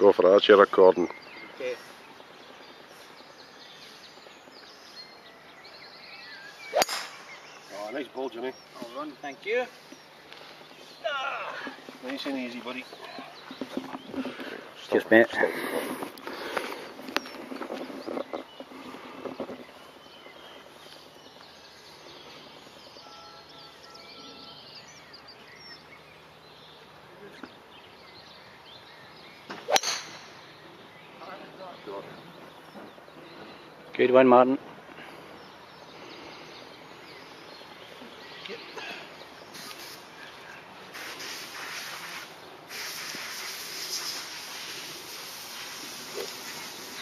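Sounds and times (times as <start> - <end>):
faint bird chirps: 0.4 - 15.0, 16.4 - 47.0
golf club swish: 6.6 - 7.5, 29.7 - 30.3
golf club striking ball: 6.7 - 7.5, 29.5 - 30.4.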